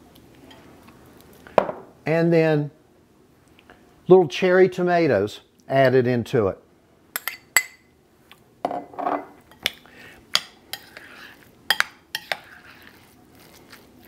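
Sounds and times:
spoon clinking against bowls: 7.2 - 7.9.

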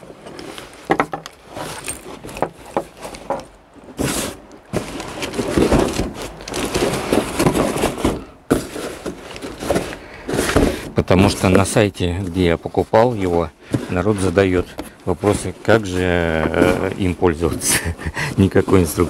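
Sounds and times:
canvas backpack rustling: 1.4 - 3.3
cardboard box scraping fabric: 3.9 - 11.6, 12.8 - 19.0.

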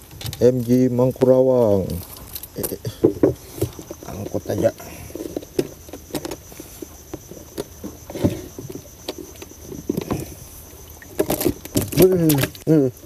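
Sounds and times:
high insect drone: 0.0 - 13.0
knocks and clicks of handling: 1.9 - 6.5.

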